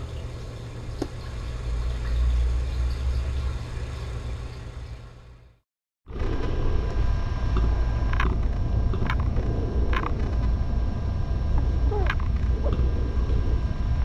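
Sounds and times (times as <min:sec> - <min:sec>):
loud low rumble: 0:06.1 - 0:14.0.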